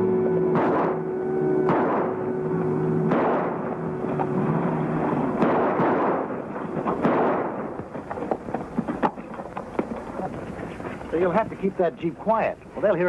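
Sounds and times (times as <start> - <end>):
engine backfiring with loud bangs: 0.0 - 10.0.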